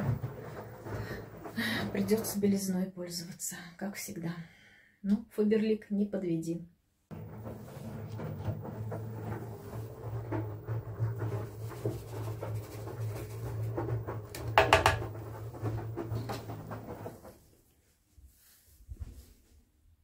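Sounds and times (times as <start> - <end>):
plastic scoop scraping and tapping: 7.1 - 17.2.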